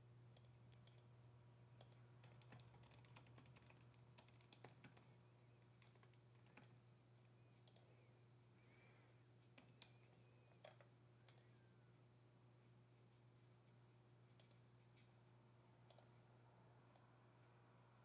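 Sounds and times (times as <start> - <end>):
low steady hum: 0.0 - 18.0
keyboard typing: 0.3 - 1.1, 1.8 - 6.8, 9.4 - 11.6, 14.3 - 14.7, 15.8 - 17.0.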